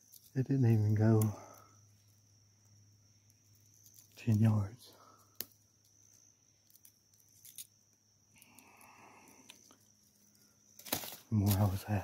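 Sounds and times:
faint clicks and rustles: 0.0 - 12.0.

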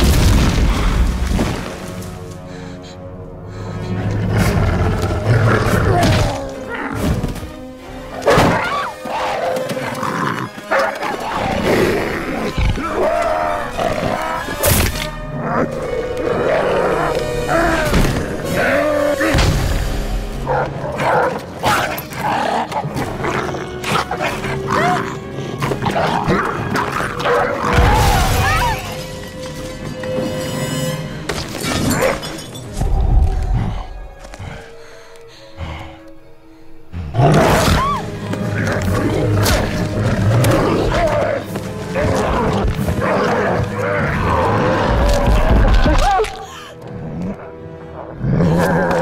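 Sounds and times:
dramatic orchestral score: 0.0 - 49.0
dogs snarling and roaring: 8.1 - 14.6, 20.4 - 28.0, 37.0 - 49.0.

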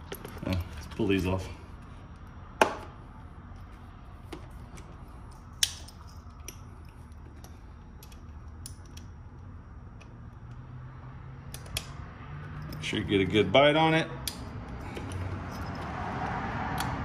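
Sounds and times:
wrench clicking on bolts: 14.2 - 17.0.

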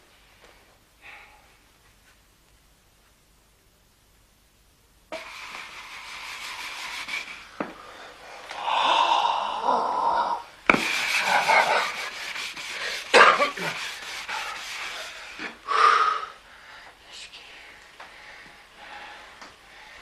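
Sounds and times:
rubbing strokes on wooden floor: 5.1 - 8.5, 10.6 - 15.6.

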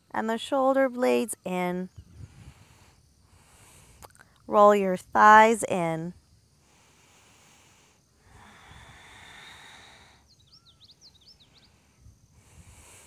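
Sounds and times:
small bird chirping: 10.2 - 12.1.

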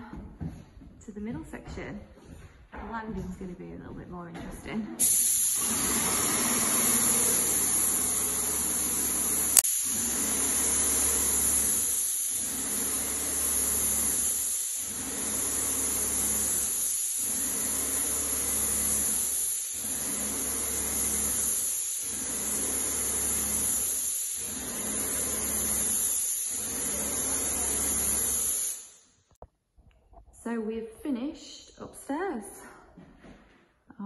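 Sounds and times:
paint sprayer hissing: 5.0 - 29.0.

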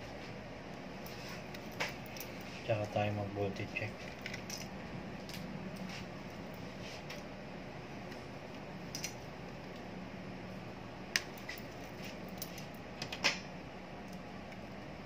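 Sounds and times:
cables and connectors clicking: 11.1 - 14.8.

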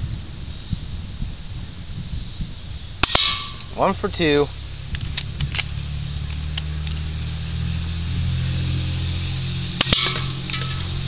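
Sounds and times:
vehicle engine hum: 2.2 - 11.0.

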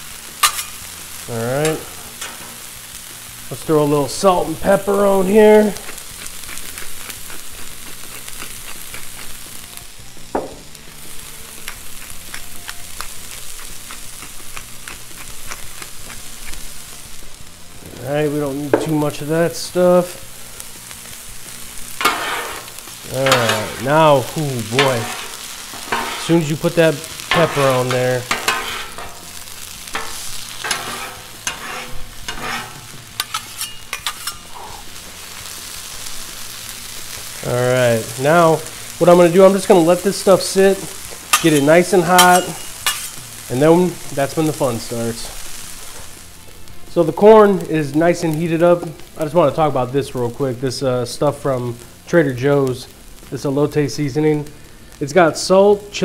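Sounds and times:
corn sizzling on griddle: 0.0 - 56.0
metal spatulas scraping steel: 0.4 - 0.9, 22.0 - 23.9, 24.7 - 26.5, 27.3 - 29.2, 29.9 - 34.7, 41.3 - 43.2
crackling pops: 11.6 - 16.7, 21.8 - 35.0.

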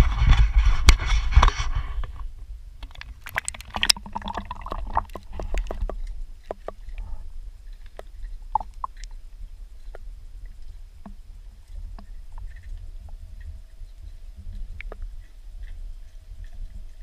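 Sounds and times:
muffled underwater clicks and knocks: 0.0 - 9.2, 9.8 - 13.7, 14.4 - 15.8
low underwater rumble: 1.8 - 17.0
water rushing and splashing: 2.8 - 7.0.

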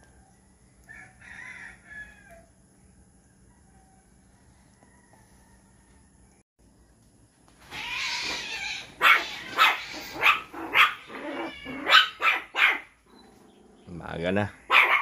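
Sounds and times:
dog barking: 9.0 - 11.1, 11.7 - 12.9, 14.7 - 15.0.

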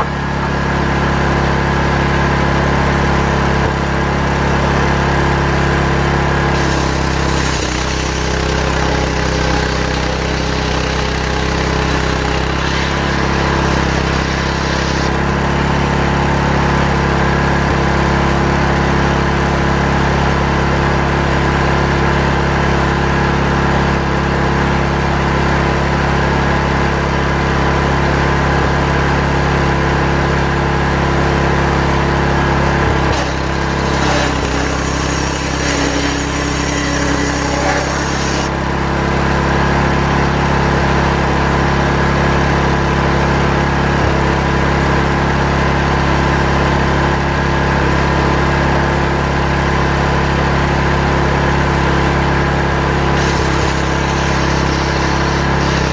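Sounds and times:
chainsaw cutting log: 4.4 - 16.8, 32.4 - 38.7, 52.7 - 55.9.

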